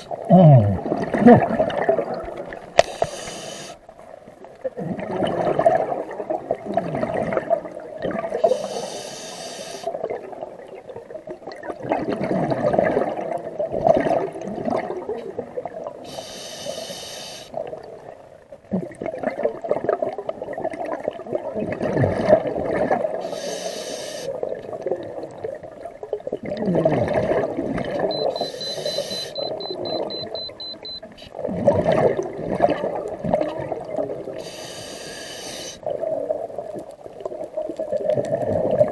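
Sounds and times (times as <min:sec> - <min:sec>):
bubbling exhalations underwater: 0:00.0 - 0:02.7, 0:04.6 - 0:08.7, 0:09.9 - 0:16.0, 0:18.7 - 0:23.4, 0:24.3 - 0:30.4, 0:31.4 - 0:34.5, 0:35.8 - 0:38.9
regulator hissing inhalation: 0:02.8 - 0:03.8, 0:08.4 - 0:09.9, 0:16.1 - 0:17.5, 0:23.2 - 0:24.3, 0:28.4 - 0:29.4, 0:34.4 - 0:35.8.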